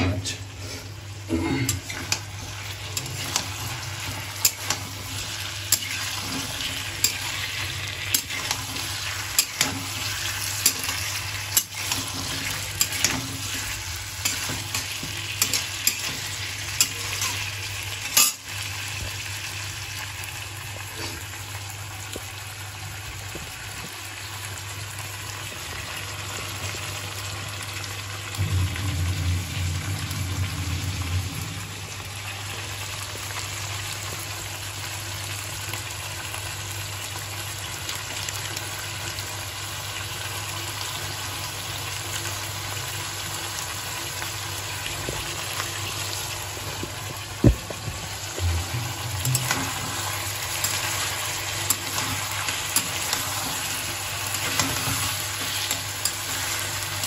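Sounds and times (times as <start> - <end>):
metal spatula scraping pan: 0.0 - 18.5, 48.4 - 57.0
food sizzling in a pan: 0.0 - 57.0.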